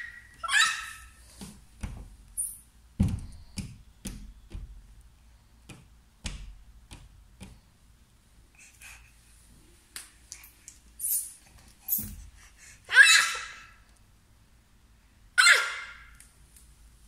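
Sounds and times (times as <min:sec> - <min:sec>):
baby squealing: 0:00.0 - 0:01.2, 0:12.9 - 0:13.7, 0:15.4 - 0:16.0
hands slapping glass door: 0:03.0 - 0:04.9, 0:05.6 - 0:07.6.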